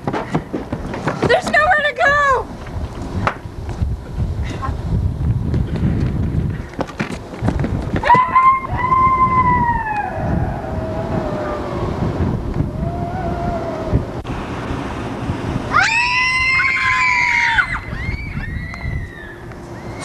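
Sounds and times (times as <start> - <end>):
wind rumble on microphone: 0.0 - 20.0
wavering cries: 8.0 - 14.1, 15.7 - 20.0.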